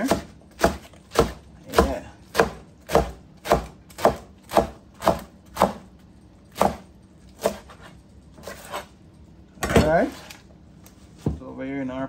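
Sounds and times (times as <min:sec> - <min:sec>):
knife chopping on cutting board: 0:00.0 - 0:05.9, 0:06.5 - 0:08.9.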